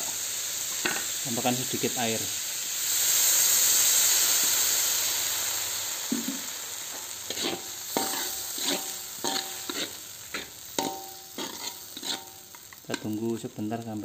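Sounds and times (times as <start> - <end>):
water sizzling in hot wok: 0.0 - 14.0
metal spatula scraping wok: 6.9 - 13.2.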